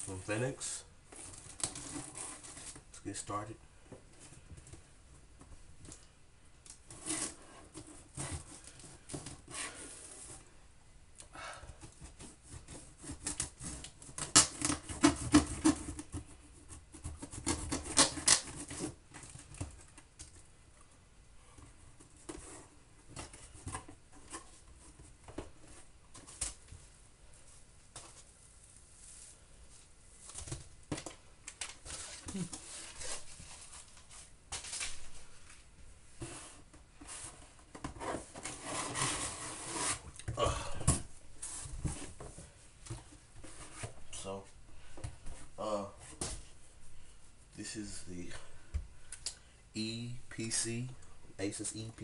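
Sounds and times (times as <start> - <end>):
knife slitting packing tape: 13.2 - 15.8, 17.4 - 18.9.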